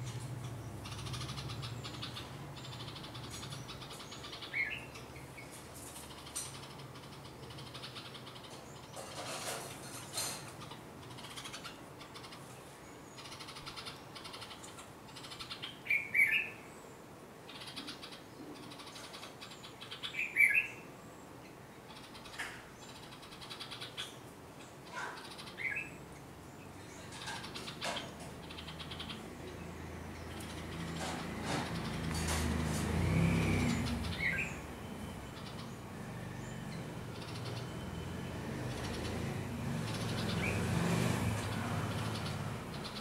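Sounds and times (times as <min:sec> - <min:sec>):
bird sharp alarm calls: 0:13.1 - 0:16.6, 0:17.5 - 0:20.8, 0:27.0 - 0:29.6, 0:30.2 - 0:35.8, 0:36.4 - 0:40.8
faint bird chirps: 0:33.2 - 0:40.7.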